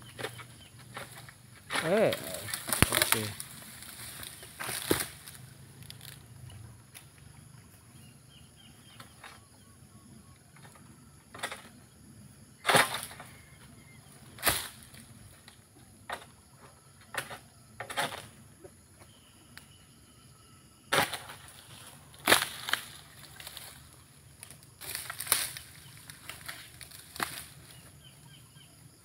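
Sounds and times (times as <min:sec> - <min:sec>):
sickle chopping palm fronds: 0:00.1 - 0:06.2, 0:11.3 - 0:11.7, 0:12.6 - 0:13.4, 0:14.2 - 0:15.2, 0:17.1 - 0:18.3, 0:20.9 - 0:27.9.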